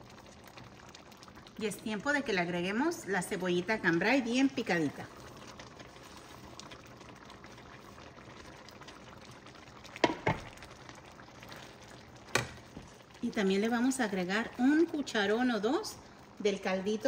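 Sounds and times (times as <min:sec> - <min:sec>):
stew bubbling in a pan: 0:00.0 - 0:17.0
metal spoon knocking against pan: 0:10.0 - 0:10.4.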